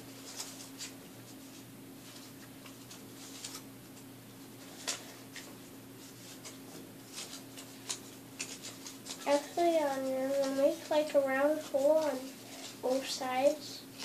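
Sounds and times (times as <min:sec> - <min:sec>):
paper rustling: 0:00.0 - 0:14.0
steady low hum: 0:00.0 - 0:14.0.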